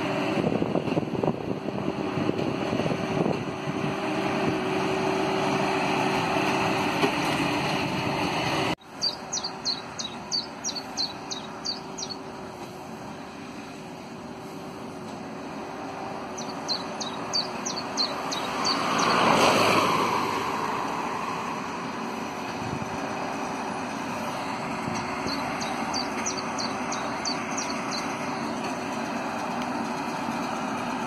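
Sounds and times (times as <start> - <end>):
tractor and baler machinery hum: 0.0 - 31.0
bird chirping: 8.8 - 12.3, 16.3 - 19.4, 24.9 - 28.6.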